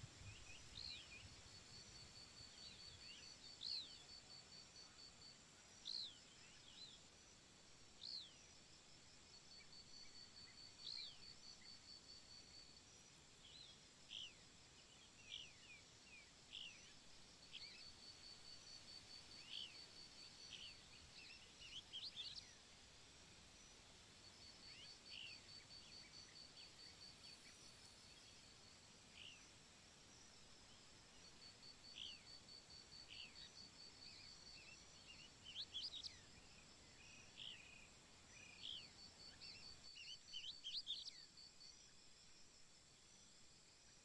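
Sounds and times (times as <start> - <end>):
small birds chirping: 0.1 - 7.2, 12.8 - 29.7, 30.4 - 41.4.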